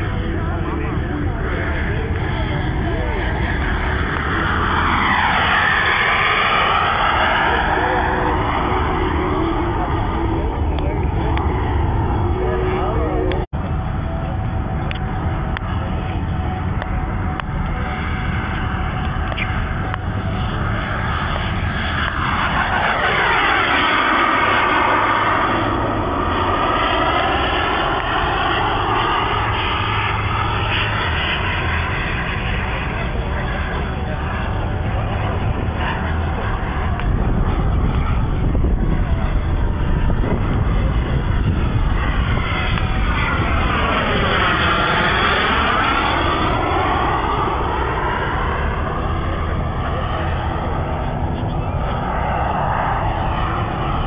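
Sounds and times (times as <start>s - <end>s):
model jet turbine engines: 0.0s - 54.0s.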